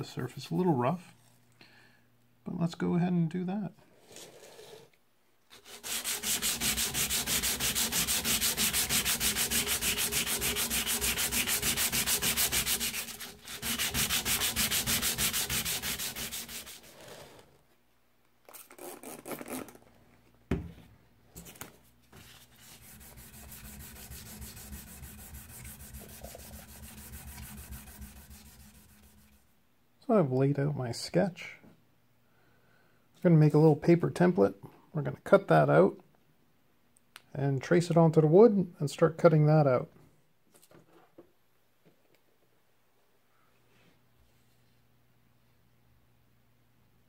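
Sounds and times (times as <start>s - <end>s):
sandpaper rubbing on steel: 5.5s - 17.4s, 22.5s - 29.4s.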